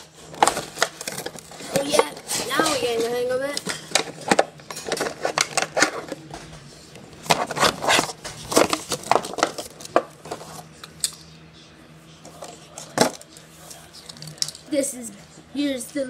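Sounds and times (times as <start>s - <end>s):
plastic packaging crackling: 0.2s - 6.2s, 7.2s - 10.6s.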